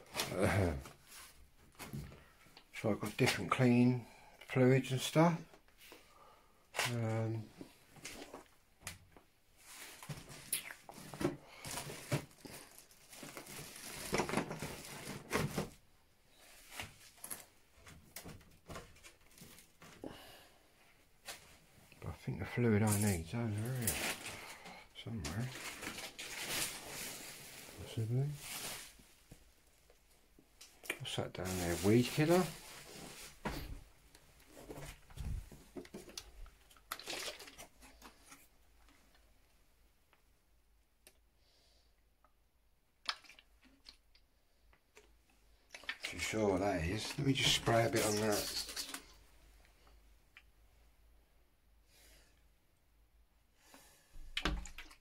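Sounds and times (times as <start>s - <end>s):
rustling and scraping of objects: 0.0s - 3.6s, 6.7s - 20.1s, 20.9s - 21.9s, 22.5s - 39.3s, 45.7s - 50.0s.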